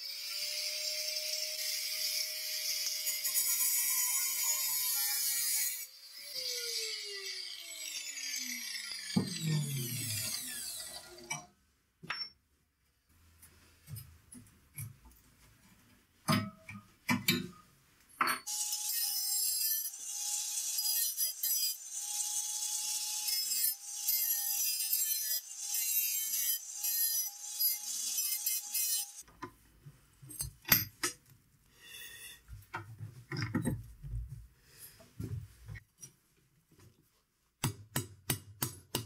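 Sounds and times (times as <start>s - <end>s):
angle grinder cutting steel: 0.0s - 11.5s, 18.5s - 29.2s.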